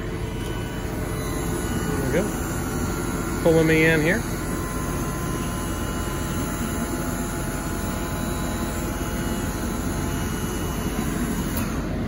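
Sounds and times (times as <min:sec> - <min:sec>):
diesel engine idling: 0:00.0 - 0:12.0
wheelchair lift motor running: 0:00.0 - 0:12.0.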